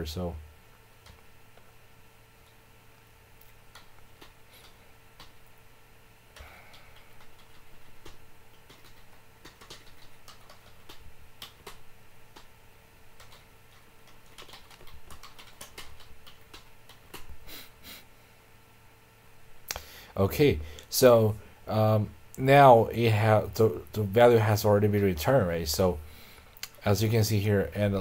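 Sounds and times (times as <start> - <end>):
faint electrical hum: 0.0 - 28.0
keyboard and mouse clicks: 3.4 - 5.4, 6.4 - 12.5, 13.2 - 17.3.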